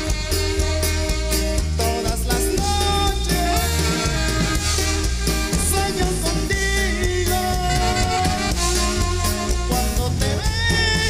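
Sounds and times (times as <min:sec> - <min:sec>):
instrumental band music: 0:00.0 - 0:11.0.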